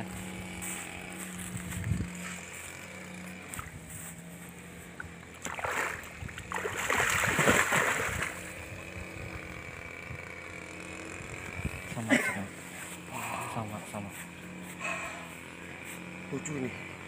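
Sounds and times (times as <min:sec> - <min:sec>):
fish thrashing and splashing: 0:04.9 - 0:08.6.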